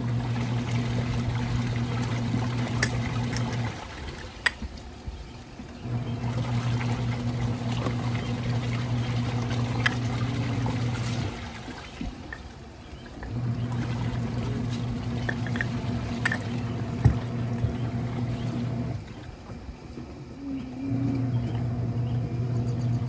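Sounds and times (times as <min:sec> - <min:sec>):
water trickling and pouring: 0:00.0 - 0:19.5
washing machine motor humming: 0:00.0 - 0:23.0.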